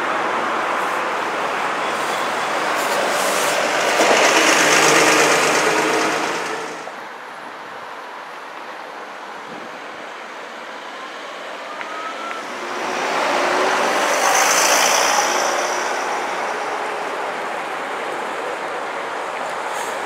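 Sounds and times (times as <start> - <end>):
street traffic: 0.0 - 20.0
vehicle passing close by: 2.7 - 6.9, 12.4 - 17.6.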